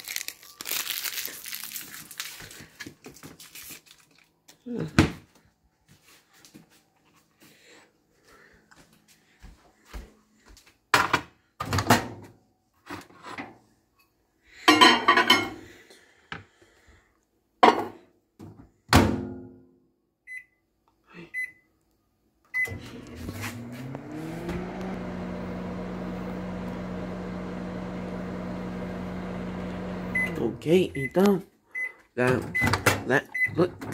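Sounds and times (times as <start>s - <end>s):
microwave humming: 22.6s - 30.8s.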